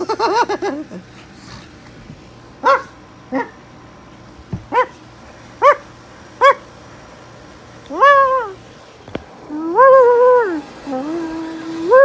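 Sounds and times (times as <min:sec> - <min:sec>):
dog whining: 0:07.9 - 0:08.6, 0:09.5 - 0:12.0.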